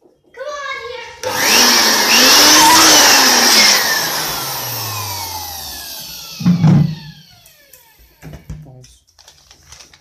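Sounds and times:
electric dust blower motor: 1.2 - 8.5.

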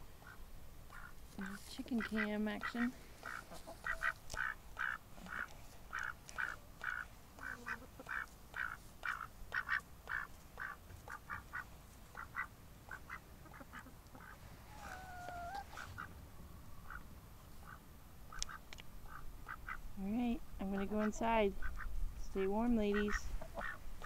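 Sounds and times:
duck quacking: 0.2 - 16.1, 20.6 - 23.8.

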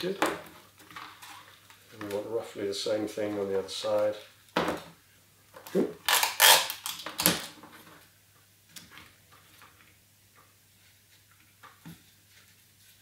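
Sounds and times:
tape torn from dispenser: 6.0 - 7.6.

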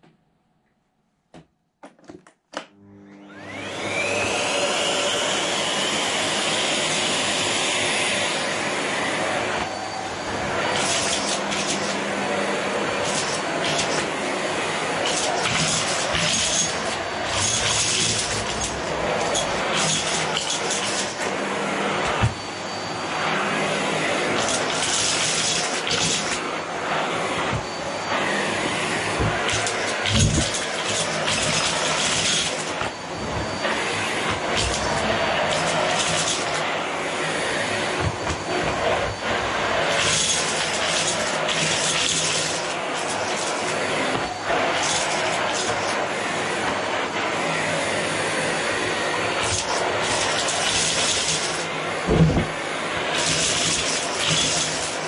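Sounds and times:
vacuum cleaner motor whining: 2.6 - 55.0
thump: 52.1 - 52.5.

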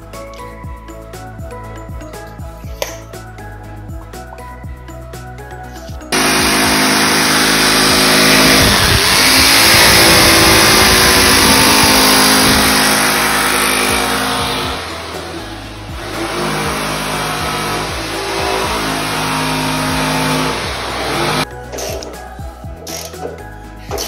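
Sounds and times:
jigsaw cutting board: 6.1 - 21.4.

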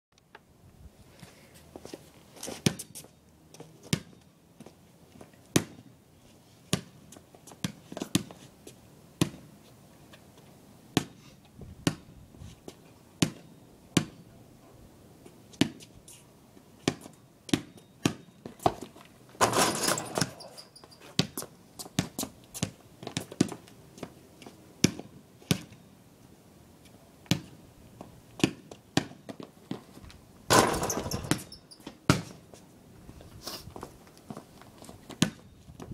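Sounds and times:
basketball bouncing on pavement: 2.6 - 3.1, 3.8 - 4.8, 5.5 - 5.9, 6.7 - 8.4, 9.2 - 9.5, 10.9 - 11.2, 11.8 - 12.1, 13.2 - 14.2, 15.5 - 15.9, 16.8 - 20.5, 21.2 - 24.2, 24.8 - 25.8, 27.2 - 29.9, 30.5 - 32.4, 35.1 - 35.9
basketball rim and backboard rattling: 19.4 - 21.4, 30.5 - 32.4.

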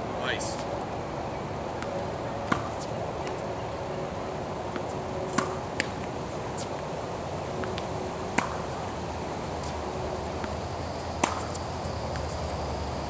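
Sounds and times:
tennis ball struck by racket: 1.8 - 3.4, 4.7 - 6.7, 7.6 - 8.8, 11.2 - 12.4
balls bouncing on hard court: 7.6 - 8.6, 11.2 - 12.4.

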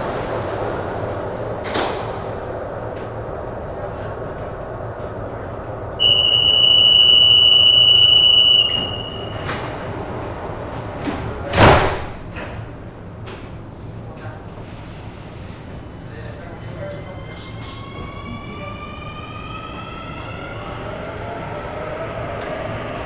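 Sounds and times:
low hum of train: 0.0 - 23.0
high-pitched warning tone: 6.0 - 9.6
train doors thumping shut: 8.0 - 9.9, 10.8 - 12.7.

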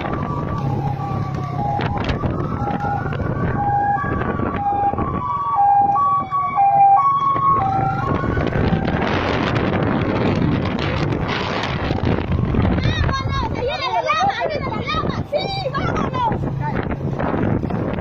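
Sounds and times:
two-tone siren: 0.0 - 9.6
wailing siren: 0.0 - 13.1.

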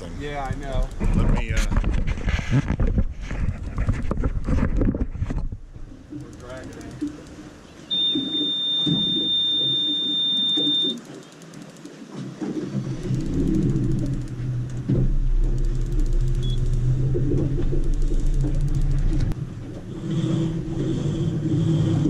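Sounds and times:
high electronic beep: 7.9 - 11.1, 16.4 - 16.7
boat engine starting and running: 12.4 - 22.0.

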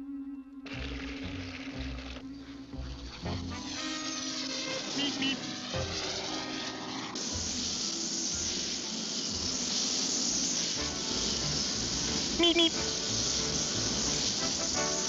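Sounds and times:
orchestral cartoon music: 0.0 - 7.7, 10.8 - 15.0
steady hiss: 0.7 - 15.0.

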